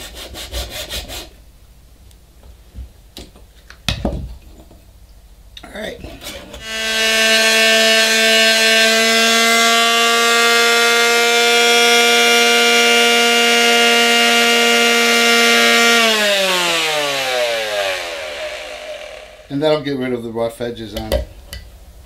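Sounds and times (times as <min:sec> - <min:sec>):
electric sander humming: 0:06.6 - 0:19.5
sander motor winding down: 0:06.6 - 0:19.5.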